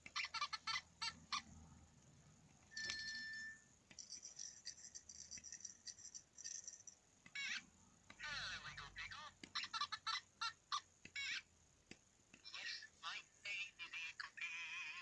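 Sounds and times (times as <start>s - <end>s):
squeaky toy chirps: 0.0s - 1.6s, 7.3s - 11.5s.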